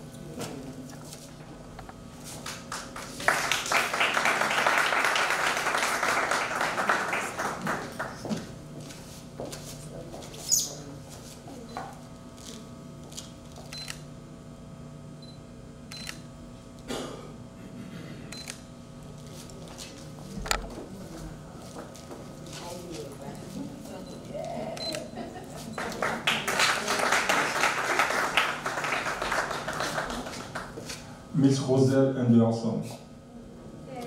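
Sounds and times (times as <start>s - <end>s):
audience applauding: 2.7s - 8.3s, 25.7s - 30.8s.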